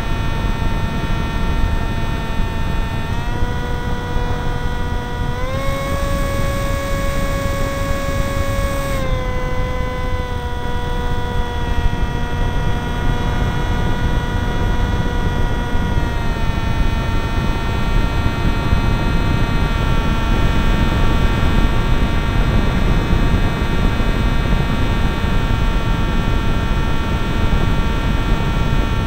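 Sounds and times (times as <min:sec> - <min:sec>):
motor and propeller whine: 0:00.0 - 0:29.0.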